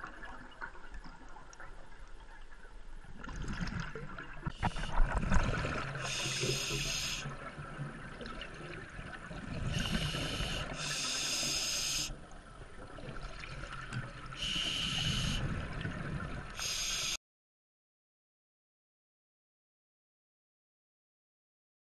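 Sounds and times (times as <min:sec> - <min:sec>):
diver breathing through regulator: 0:06.0 - 0:07.3, 0:09.6 - 0:12.2, 0:14.4 - 0:15.6, 0:16.6 - 0:17.2.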